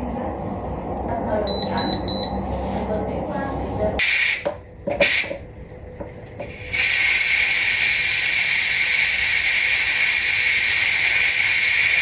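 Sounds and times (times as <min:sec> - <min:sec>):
steam hissing from pressure cooker: 0:04.0 - 0:04.4, 0:05.0 - 0:05.4, 0:06.4 - 0:12.0.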